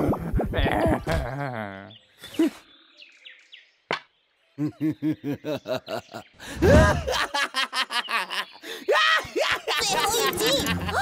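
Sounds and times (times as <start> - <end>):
cartoon man laughing: 0.1 - 2.5, 4.6 - 11.0.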